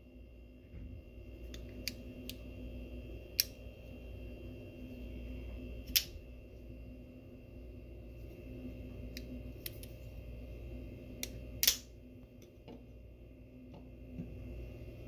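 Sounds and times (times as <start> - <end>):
knife blade snapping shut and open: 11.6 - 11.9.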